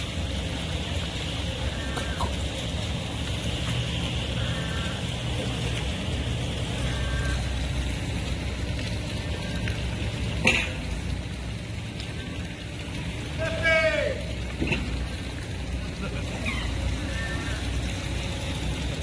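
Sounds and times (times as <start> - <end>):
rain falling on water: 0.0 - 19.0.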